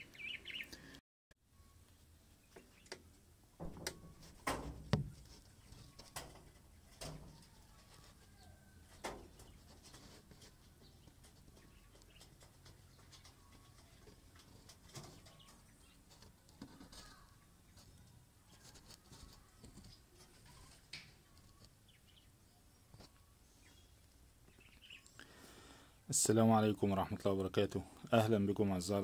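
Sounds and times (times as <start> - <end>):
birds calling faintly: 0.0 - 29.0
sharp knocks and clicks: 3.6 - 7.4.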